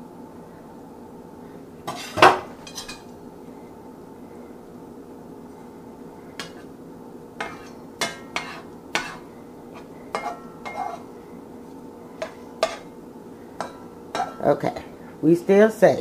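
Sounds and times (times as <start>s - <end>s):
metal spatula scraping skillet: 1.9s - 3.1s, 7.4s - 11.1s, 12.2s - 12.9s.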